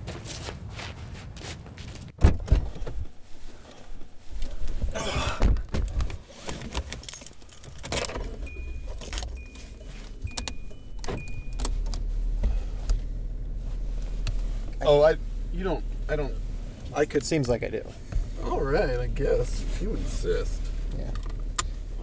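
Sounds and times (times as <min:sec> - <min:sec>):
rustling: 0:05.8 - 0:22.0
keys jangling: 0:06.5 - 0:12.0
low engine hum: 0:08.2 - 0:22.0
high warning beep: 0:08.5 - 0:11.9.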